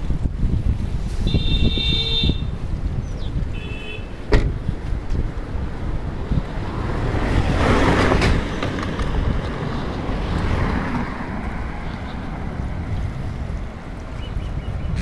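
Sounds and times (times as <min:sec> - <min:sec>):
steady low rumble: 0:04.5 - 0:15.0
car passing on road: 0:04.7 - 0:15.0.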